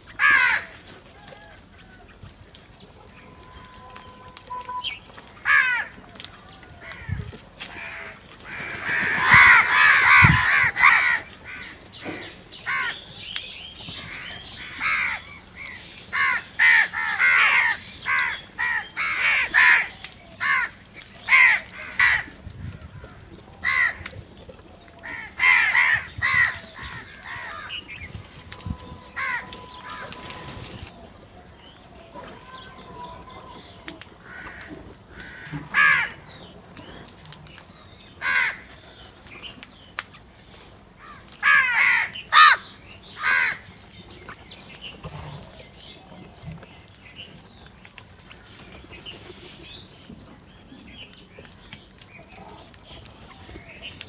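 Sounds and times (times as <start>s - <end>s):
crows cawing: 0.1s - 1.6s, 5.3s - 13.1s, 14.0s - 22.4s, 23.0s - 24.2s, 25.0s - 30.8s, 32.1s - 36.5s, 38.2s - 39.0s, 41.0s - 43.7s.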